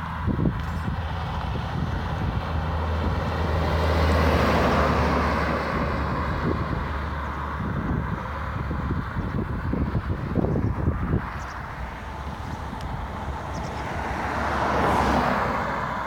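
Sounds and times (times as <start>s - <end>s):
vehicle passing close by: 0.0s - 16.0s
steady low engine hum: 5.7s - 14.5s.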